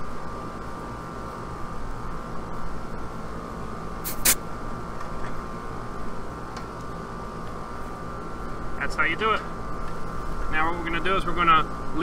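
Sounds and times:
air conditioner humming: 0.0s - 12.0s
sharp hiss of gas release: 4.0s - 4.4s.

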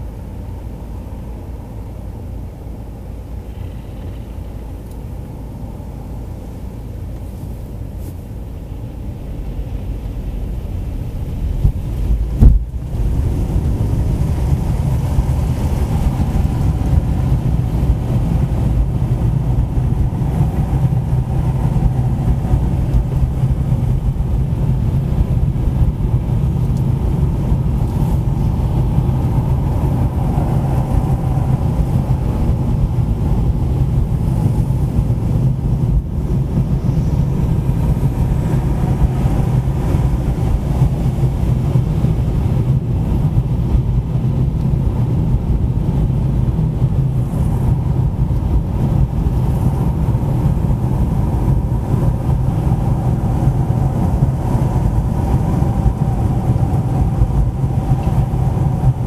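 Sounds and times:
car engine and tyres rumbling: 0.0s - 59.0s
sharp thump: 12.4s - 12.8s.

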